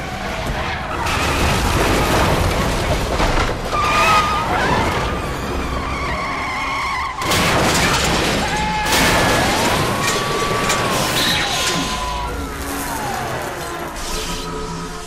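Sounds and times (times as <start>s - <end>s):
tyres skidding and squealing: 0.0s - 15.0s
car crash: 0.1s - 14.4s.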